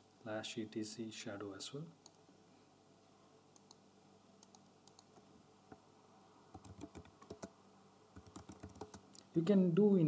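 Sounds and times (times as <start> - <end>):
faint keyboard typing: 4.4 - 5.3, 6.5 - 9.3.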